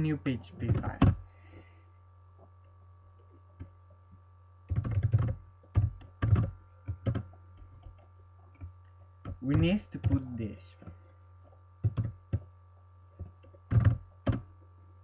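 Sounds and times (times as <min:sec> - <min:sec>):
faint electrical hum: 0:00.0 - 0:15.0
keyboard typing: 0:04.7 - 0:10.9, 0:11.8 - 0:12.5, 0:13.2 - 0:14.5.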